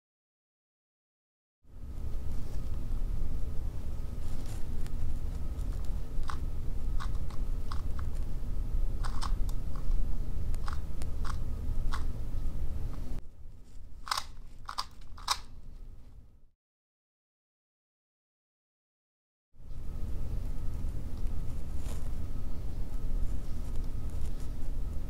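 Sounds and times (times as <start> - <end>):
puzzle cube clicking: 9.0 - 9.8, 14.0 - 15.5.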